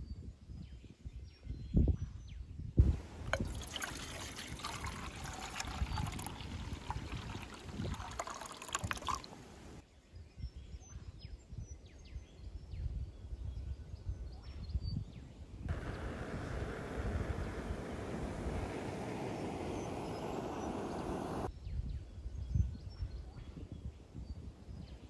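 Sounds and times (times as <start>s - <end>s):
water trickling and pouring: 2.8s - 9.8s, 15.7s - 21.5s
small birds chirping: 15.7s - 21.5s.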